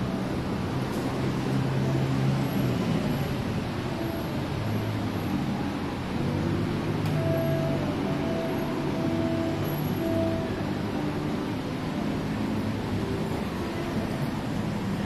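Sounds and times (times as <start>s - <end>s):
road noise: 0.0s - 15.0s
vehicle engines running: 0.0s - 15.0s.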